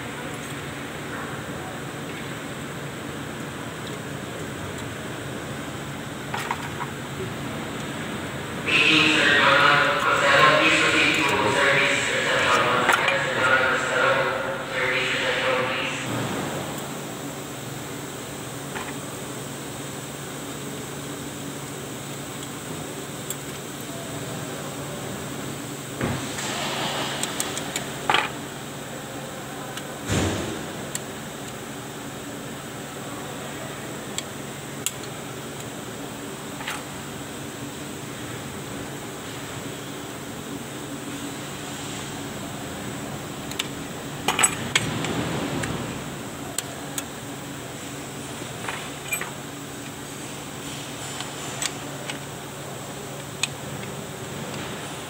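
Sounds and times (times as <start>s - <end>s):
steady low hum: 0.0s - 55.0s
metal hardware clinking: 49.0s - 49.4s.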